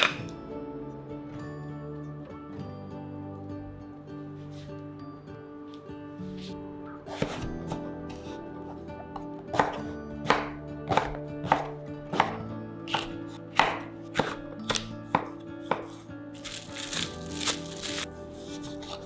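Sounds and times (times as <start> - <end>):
knife chopping on wooden board: 7.1 - 8.2, 9.2 - 16.6
cling film rustling: 16.4 - 19.0.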